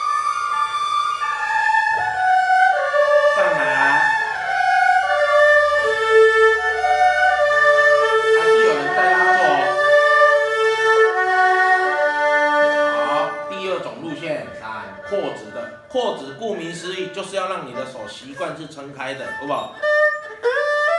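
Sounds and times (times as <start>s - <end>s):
erhu playing arpeggios: 0.0s - 20.9s.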